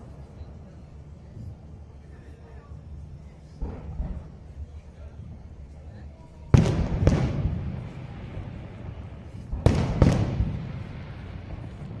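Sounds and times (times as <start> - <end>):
firework shells booming: 3.6 - 4.5, 6.5 - 12.0.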